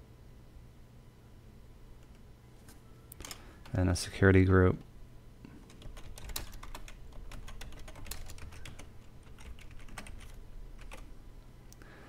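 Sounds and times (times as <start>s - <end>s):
computer keyboard typing: 5.6s - 11.1s.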